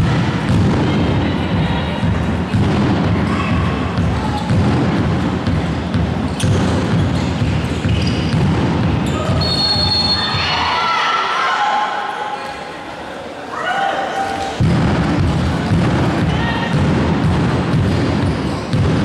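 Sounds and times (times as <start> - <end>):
ball bouncing on hall floor: 0.0 - 10.4, 14.3 - 19.0
footsteps thumping: 14.6 - 19.0.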